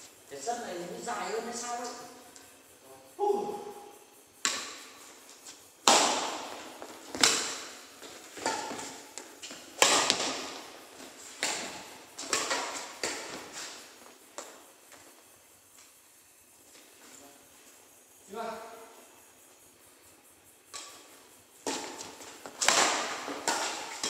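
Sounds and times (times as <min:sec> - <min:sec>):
rackets hitting shuttlecock: 0:04.4 - 0:05.0, 0:05.8 - 0:13.8, 0:20.7 - 0:24.0.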